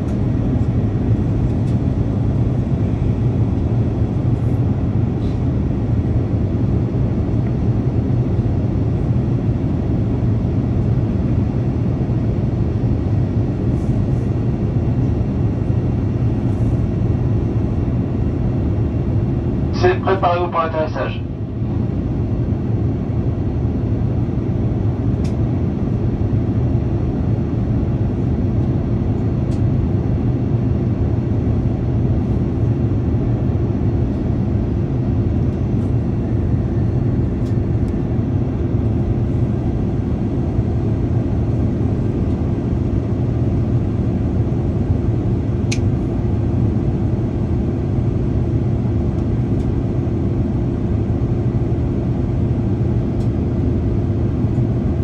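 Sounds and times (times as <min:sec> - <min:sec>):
aircraft cabin roar: 0:00.0 - 0:55.0
steady hum: 0:00.0 - 0:55.0.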